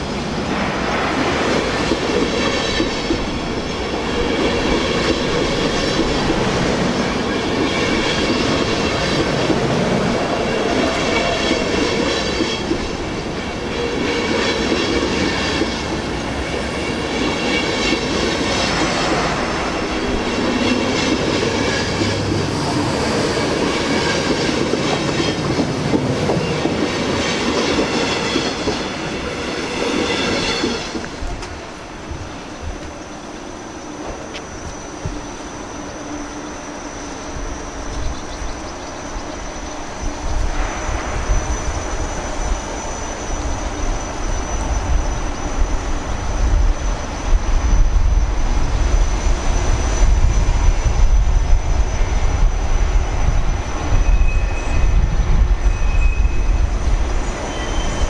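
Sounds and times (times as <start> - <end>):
train coaches rumbling: 0.0 - 58.0
high wheel squeal: 53.2 - 58.0.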